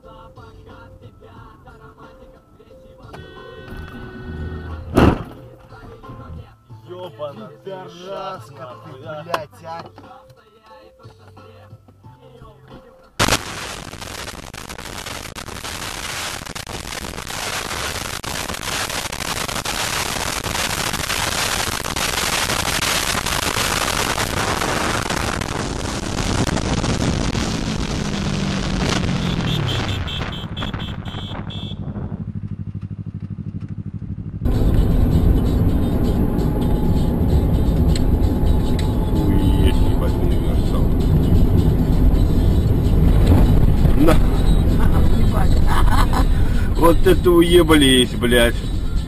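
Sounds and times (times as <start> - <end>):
vehicle road and engine noise: 0.0 - 6.7, 20.2 - 49.0
deep vehicle rumble: 3.8 - 6.6, 23.6 - 49.0.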